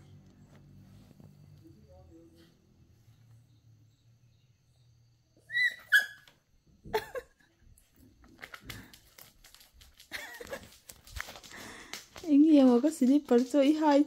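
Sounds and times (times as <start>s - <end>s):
dog whining: 5.4s - 6.3s
small clicks and rustling: 8.0s - 14.0s.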